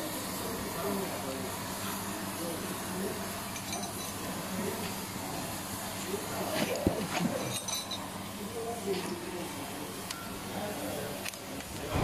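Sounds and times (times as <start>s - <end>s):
light metallic clicks and clinks: 3.5s - 4.3s, 7.3s - 8.1s.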